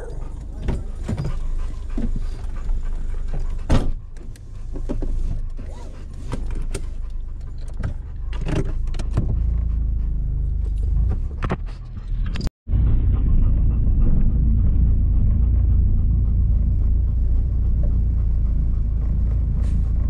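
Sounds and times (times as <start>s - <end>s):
car cabin rumble: 0.0s - 11.9s.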